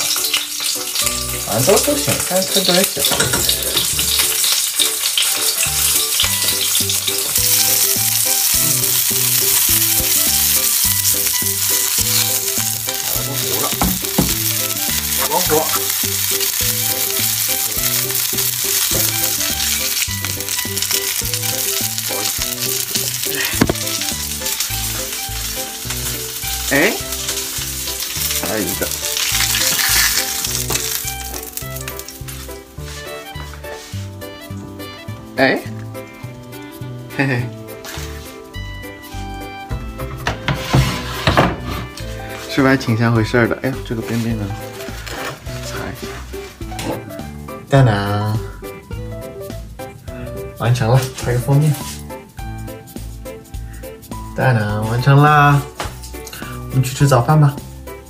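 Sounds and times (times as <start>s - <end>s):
sausages sizzling in a frying pan: 0.0s - 58.0s
spatula scraping a pan: 40.4s - 42.0s.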